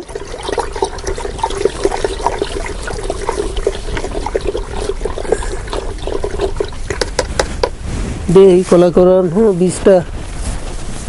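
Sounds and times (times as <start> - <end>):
water sloshing and splashing: 0.0 - 7.4.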